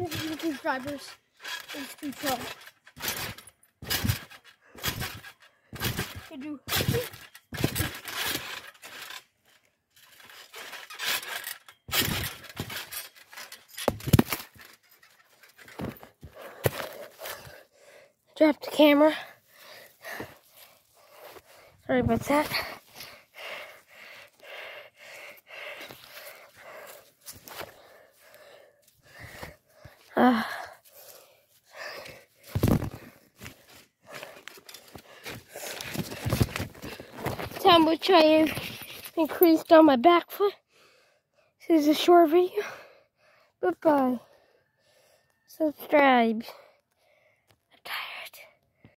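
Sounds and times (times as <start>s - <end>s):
camera handling rustling and scraping: 3.9s - 17.6s, 25.8s - 27.8s, 32.4s - 39.2s
person breathing hard: 16.1s - 18.4s, 19.2s - 21.9s, 22.5s - 37.4s, 40.6s - 41.6s, 42.5s - 43.6s, 44.2s - 45.5s, 46.4s - 47.5s.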